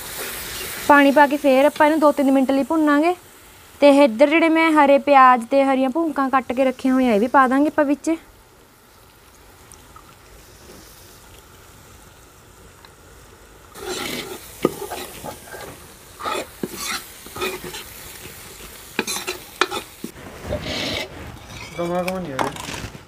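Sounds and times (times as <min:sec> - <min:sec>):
food sizzling in wok: 0:00.0 - 0:21.9
steel ladle scraping wok: 0:13.8 - 0:23.0.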